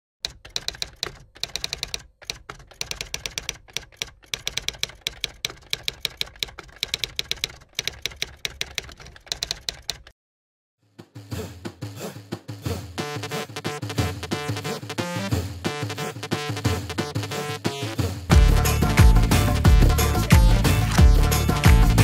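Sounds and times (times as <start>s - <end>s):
rapid key clicks typing: 0.2s - 10.2s.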